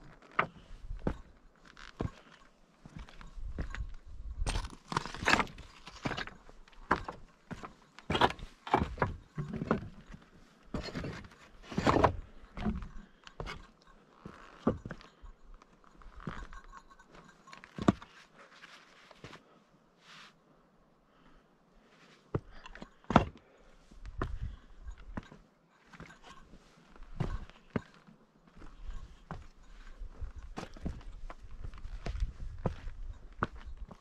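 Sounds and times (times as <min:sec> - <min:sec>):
footsteps on a trail: 0:00.0 - 0:15.1, 0:22.2 - 0:34.0.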